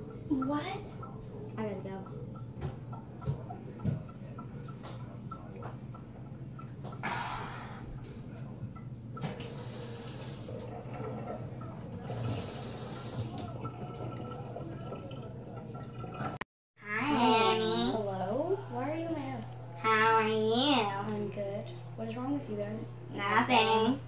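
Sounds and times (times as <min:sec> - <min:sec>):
low steady hum: 0:00.0 - 0:24.0
water running from a tap: 0:00.3 - 0:16.4.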